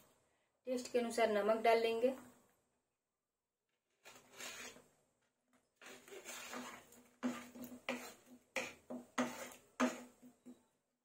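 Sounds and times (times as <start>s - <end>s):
utensil scraping thick paste in pan: 4.0s - 4.9s, 5.8s - 10.6s.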